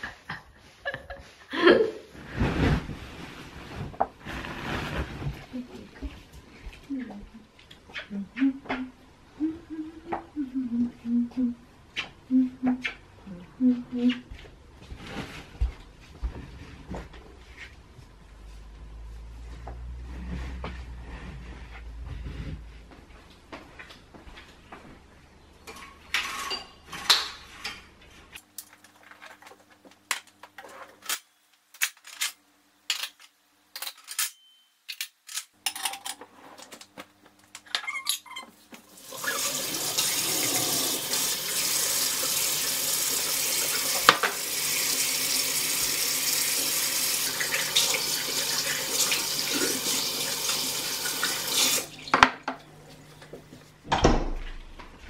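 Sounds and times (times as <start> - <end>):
kitchen items clicking and knocking: 32.9 - 36.2.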